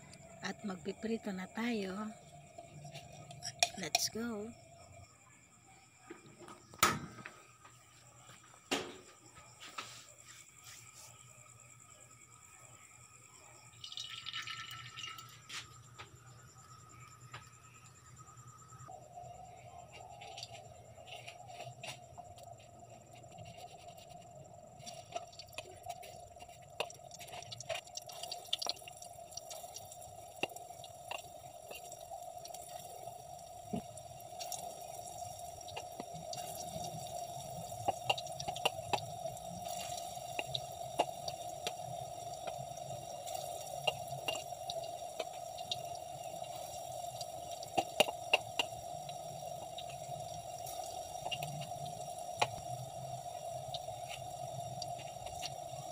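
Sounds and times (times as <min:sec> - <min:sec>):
food deep-frying in hot oil: 0:10.1 - 0:55.9
oil pops and crackles: 0:24.8 - 0:55.9.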